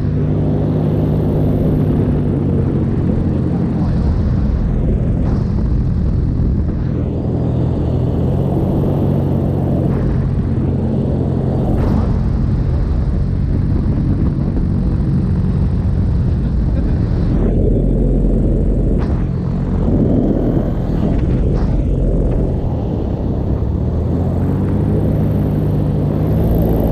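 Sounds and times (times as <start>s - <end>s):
paramotor engine and propeller: 0.0s - 26.9s
wind rumbling over microphone: 0.0s - 26.9s.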